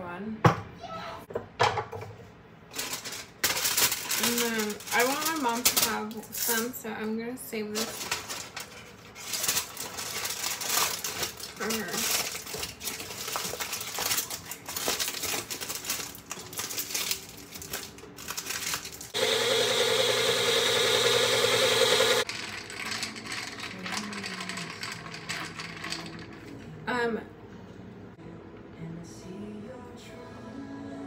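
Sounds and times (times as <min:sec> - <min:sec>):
kitchen blender running: 0:19.1 - 0:26.3.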